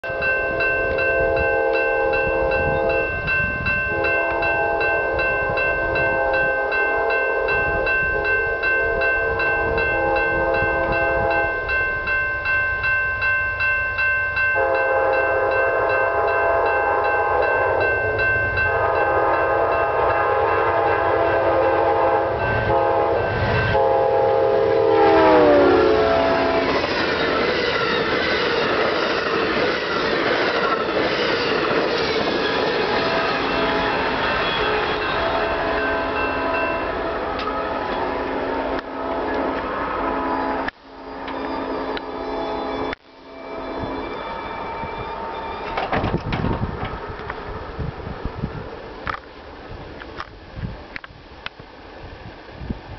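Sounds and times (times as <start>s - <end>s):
locomotive horn blasts: 0.0s - 11.7s, 14.6s - 17.9s, 18.6s - 26.8s
train cars rumbling and clattering: 0.0s - 40.0s, 43.8s - 51.1s
crossing bell ringing: 0.0s - 47.3s.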